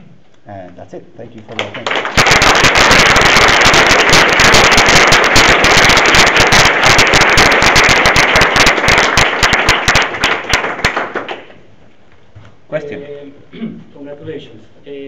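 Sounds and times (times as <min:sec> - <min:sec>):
audience applauding: 0:01.5 - 0:11.6.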